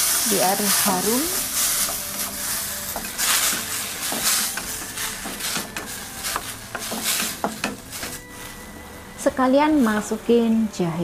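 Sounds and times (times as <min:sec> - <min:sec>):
tomatoes sizzling in hot oil: 0:00.0 - 0:10.8
spatula clicking and scraping pan: 0:00.6 - 0:08.2.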